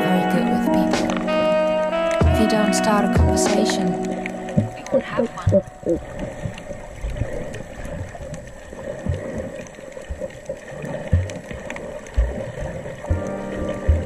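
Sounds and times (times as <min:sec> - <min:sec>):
music with sustained notes: 0:00.0 - 0:06.7, 0:13.1 - 0:14.0
dull low thumps: 0:02.1 - 0:02.6, 0:03.2 - 0:06.3, 0:12.2 - 0:14.0.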